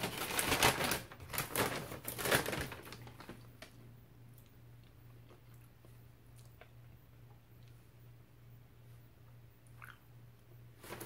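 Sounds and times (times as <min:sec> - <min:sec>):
plastic bag rustling: 0:00.0 - 0:03.7, 0:10.8 - 0:11.0
low steady hum: 0:00.0 - 0:11.0.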